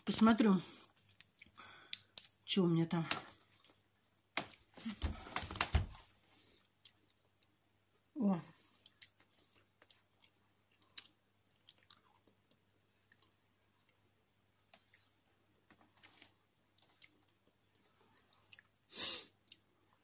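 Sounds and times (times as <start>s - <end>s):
soft rustles: 15.8s - 16.4s.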